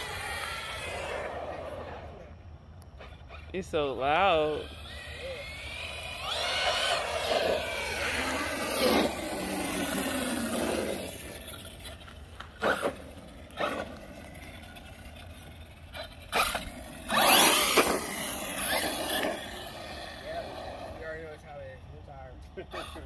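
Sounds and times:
rc car electric motor whining: 0:00.0 - 0:02.2, 0:02.8 - 0:21.7, 0:22.5 - 0:23.0
tyres scraping: 0:02.9 - 0:21.2.

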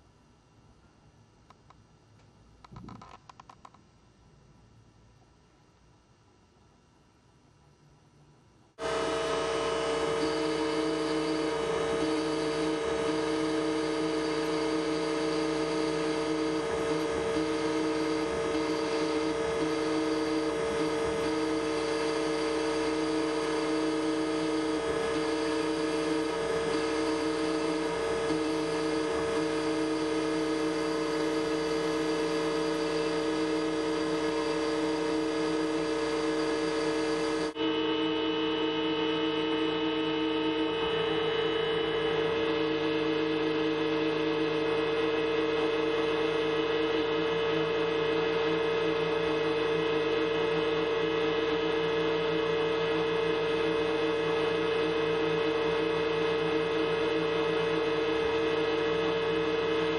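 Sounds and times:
milling machine spindle whining: 0:08.8 - 0:59.9.

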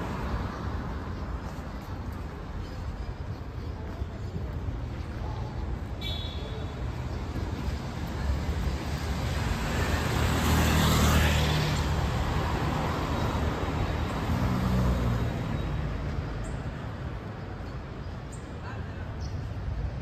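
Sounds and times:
steady traffic noise: 0:00.0 - 0:20.0
cars driving past: 0:07.2 - 0:17.0.

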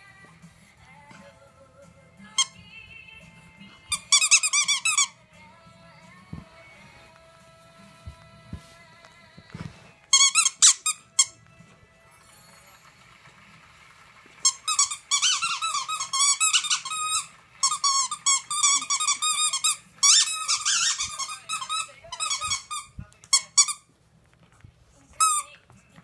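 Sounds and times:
dog toy squeaker squealing: 0:03.9 - 0:05.2, 0:10.1 - 0:11.4, 0:14.4 - 0:23.8.

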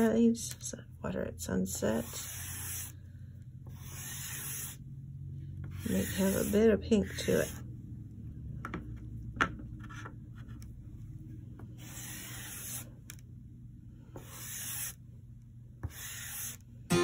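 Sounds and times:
chalk pastel scratching paper: 0:02.0 - 0:02.9, 0:03.7 - 0:04.8, 0:05.7 - 0:07.6, 0:11.8 - 0:12.9, 0:14.2 - 0:15.0, 0:15.8 - 0:16.6.

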